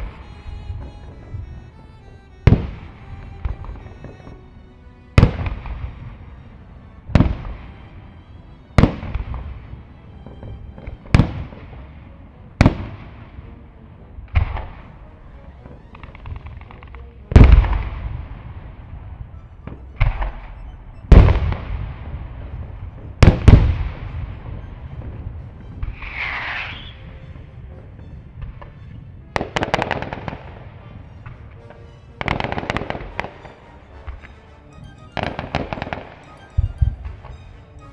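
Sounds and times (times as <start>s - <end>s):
fireworks crackling: 21.1s - 34.3s.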